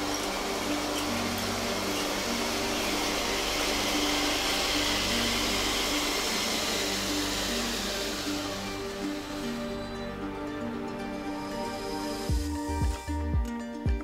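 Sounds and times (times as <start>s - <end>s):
toy train motors whirring: 0.0s - 10.3s
background music: 0.0s - 14.0s.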